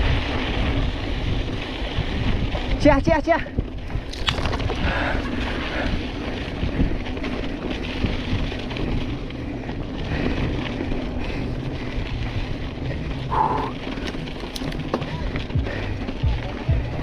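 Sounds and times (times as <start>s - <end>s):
bike rumbling over stony track: 0.0s - 17.0s
wind on microphone: 0.0s - 17.0s.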